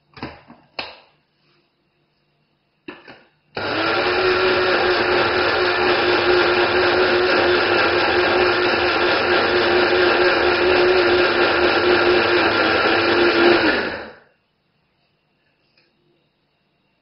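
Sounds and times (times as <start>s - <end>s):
blade grinder running: 3.6s - 14.1s.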